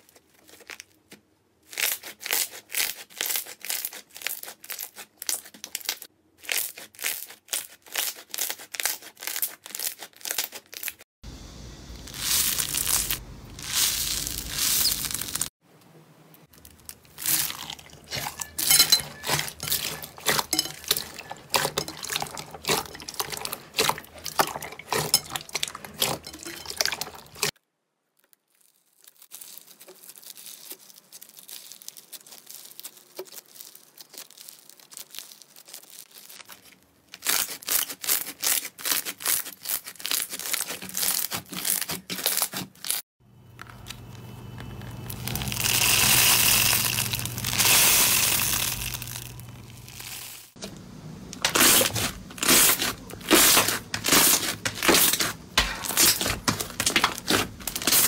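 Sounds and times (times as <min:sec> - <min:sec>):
slime crackling and popping: 0:12.0 - 0:15.5, 0:27.4 - 0:43.0, 0:44.7 - 0:50.6, 0:51.4 - 0:58.0.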